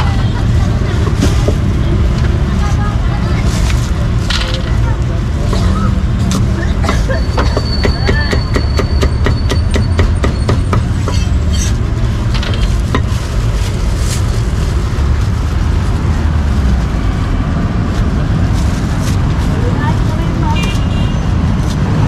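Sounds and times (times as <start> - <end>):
low street rumble: 0.0 - 22.0
cleaver chopping meat: 7.4 - 11.3.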